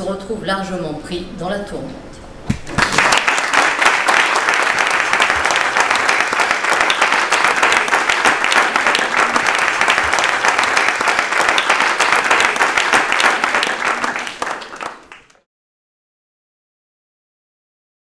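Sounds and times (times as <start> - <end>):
audience applauding: 2.6 - 15.4.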